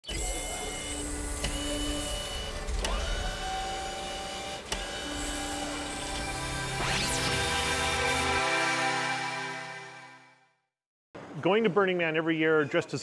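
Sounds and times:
gears clicking: 0:00.0 - 0:07.8
motor and servo whines: 0:00.0 - 0:08.8.

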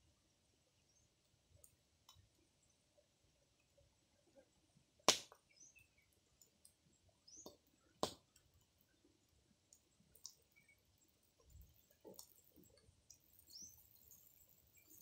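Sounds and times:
faint bird chirps: 0:00.7 - 0:01.2, 0:05.4 - 0:15.0
fire crackling and popping: 0:05.0 - 0:05.5, 0:06.3 - 0:15.0.

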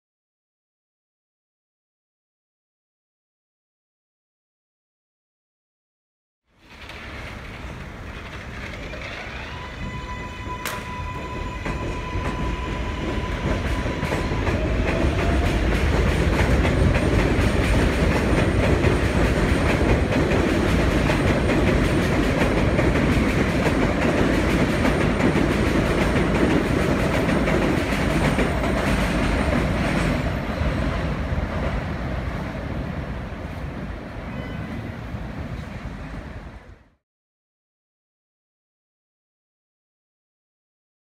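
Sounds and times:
train rumbling overhead: 0:06.6 - 0:37.0.

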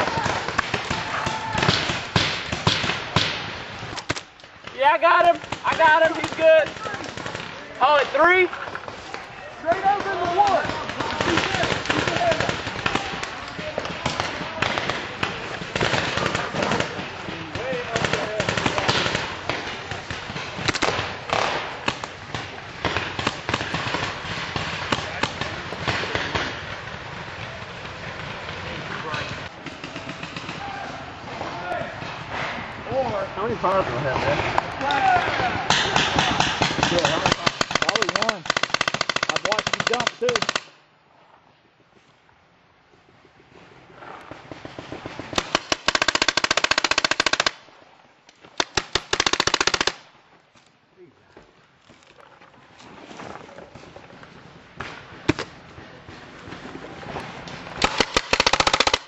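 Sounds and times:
paintball markers firing: 0:35.7 - 0:40.8, 0:57.8 - 0:59.0.

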